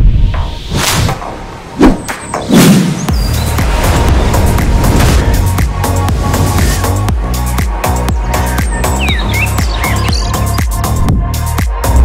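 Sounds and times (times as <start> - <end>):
whoosh: 0.0 - 7.3
deep booming hits: 0.0 - 7.6
instrumental music: 3.1 - 12.0.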